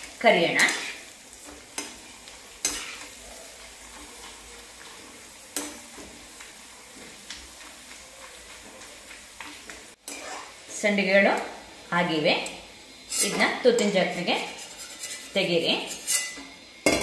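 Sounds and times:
food sizzling in hot oil: 0:00.0 - 0:17.0
metal spoon clinking against pan: 0:14.6 - 0:17.0.

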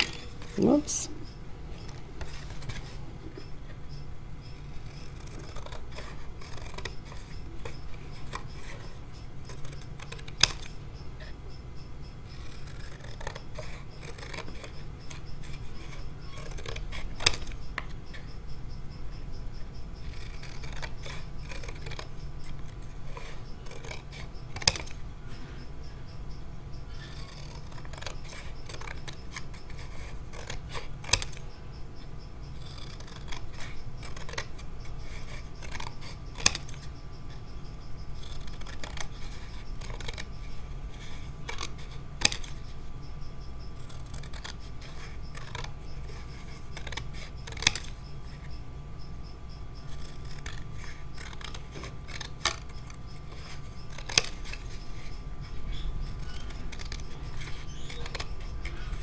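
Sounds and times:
scissors cutting paper: 0:00.0 - 0:01.0, 0:04.6 - 0:11.4, 0:12.3 - 0:18.3, 0:20.0 - 0:25.0, 0:26.9 - 0:31.5, 0:32.5 - 0:36.9, 0:38.2 - 0:42.6, 0:43.7 - 0:48.0, 0:49.8 - 0:59.0.

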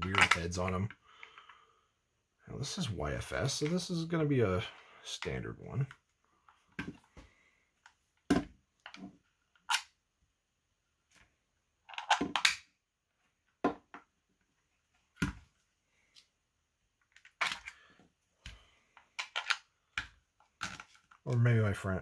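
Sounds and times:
plastic parts clicking and knocking: 0:00.0 - 0:01.6, 0:07.8 - 0:09.9, 0:11.8 - 0:12.7, 0:17.0 - 0:17.8, 0:18.4 - 0:21.3.

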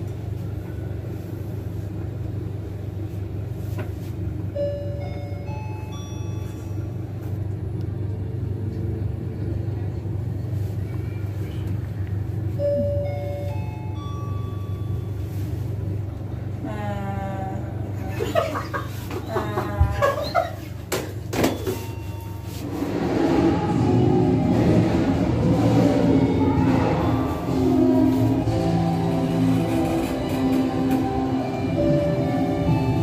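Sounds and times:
elevator car hum: 0:00.0 - 0:33.0
elevator chime melody: 0:04.5 - 0:07.5, 0:12.5 - 0:15.7, 0:21.4 - 0:22.6, 0:27.0 - 0:33.0.

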